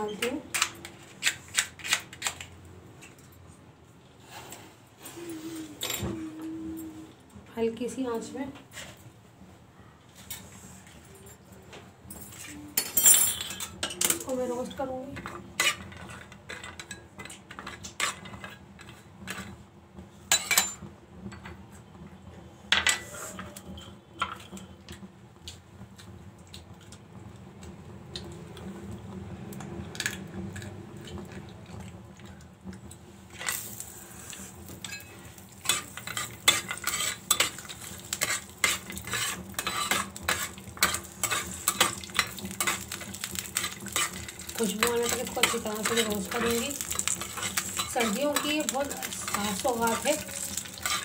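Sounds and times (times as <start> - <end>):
spatula scraping a pan: 15.2 - 19.5, 33.3 - 51.0
nuts sizzling in oil: 33.3 - 51.0.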